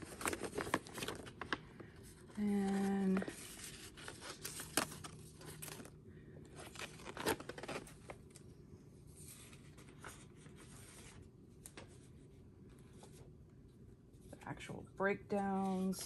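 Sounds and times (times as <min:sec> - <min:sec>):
paper sheets rustling: 0:00.0 - 0:05.9, 0:06.6 - 0:08.2.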